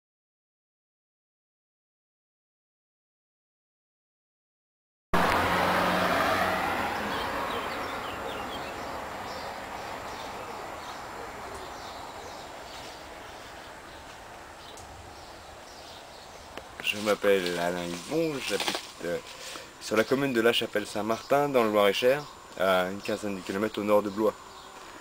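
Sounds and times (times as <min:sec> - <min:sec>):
small birds chirping: 0:06.6 - 0:25.0.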